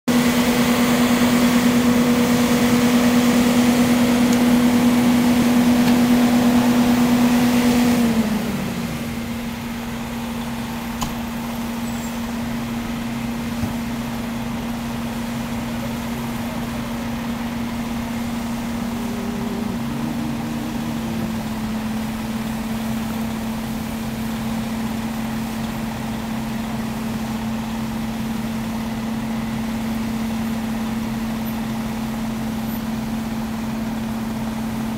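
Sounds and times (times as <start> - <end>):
fire engine engine running: 0.1 - 34.9
quiet engine drone: 0.1 - 34.9.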